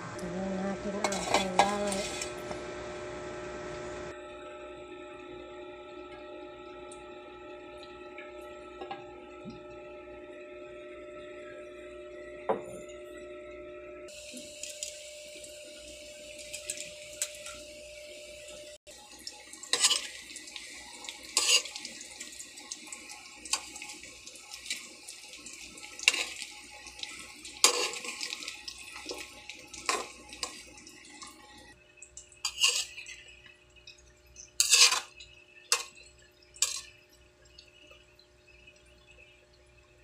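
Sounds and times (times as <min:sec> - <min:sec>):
food sizzling in oil: 0:00.0 - 0:04.2, 0:14.1 - 0:37.9
stirring in a pan: 0:00.8 - 0:02.6, 0:19.0 - 0:37.8.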